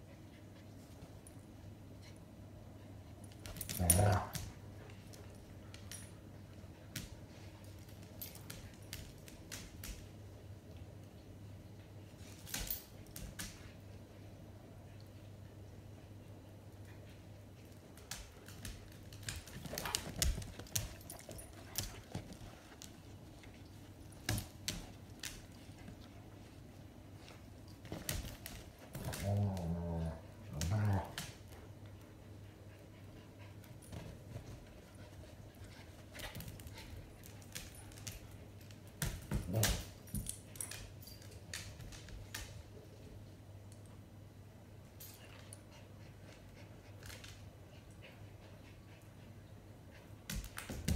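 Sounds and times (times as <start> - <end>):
dog claws scrabbling on tile: 35.6 - 42.7.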